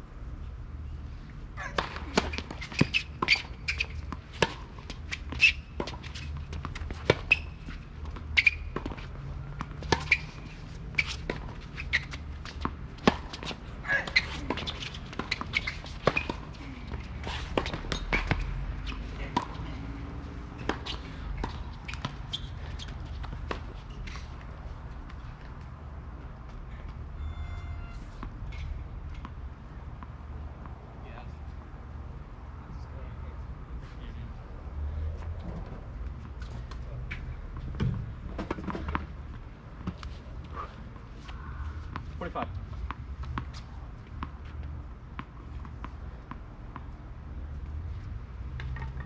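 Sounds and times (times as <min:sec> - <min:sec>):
racket hitting tennis ball: 0:01.6 - 0:07.5, 0:12.5 - 0:19.6.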